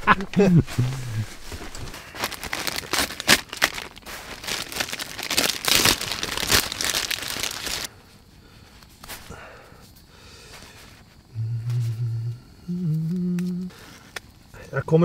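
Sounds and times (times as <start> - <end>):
packaging crinkling and rustling: 1.1 - 7.9.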